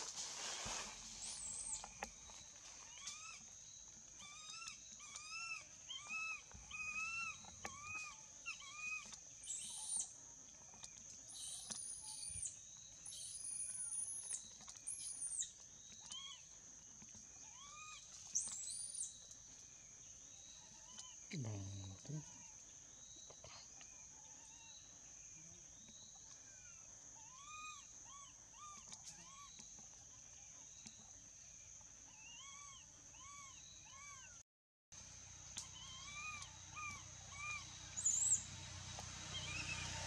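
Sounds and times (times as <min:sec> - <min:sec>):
baby monkey crying: 0:04.2 - 0:09.8, 0:17.5 - 0:18.0, 0:27.2 - 0:29.5, 0:35.6 - 0:38.4.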